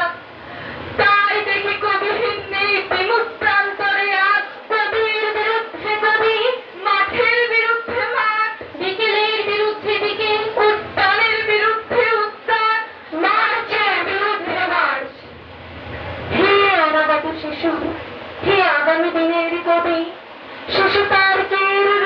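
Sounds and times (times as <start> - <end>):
girls reciting a poem: 1.0 - 15.1.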